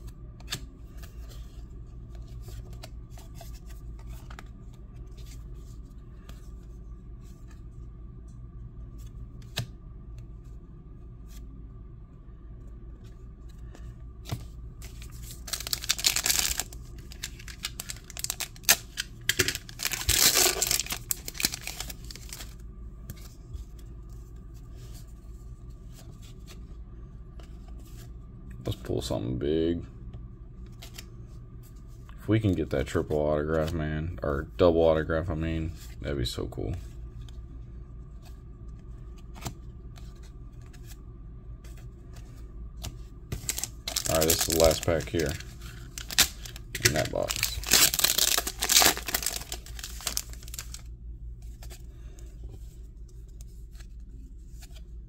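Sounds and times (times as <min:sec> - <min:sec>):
wrapper tearing and crinkling: 0:15.3 - 0:22.5, 0:43.4 - 0:50.9
cards clicking: 0:15.4 - 0:22.5.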